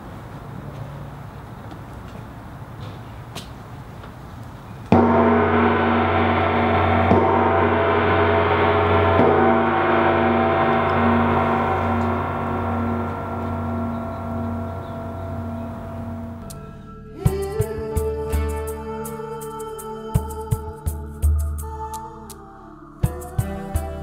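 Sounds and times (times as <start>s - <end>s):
gong struck with mallet: 4.9s - 18.4s.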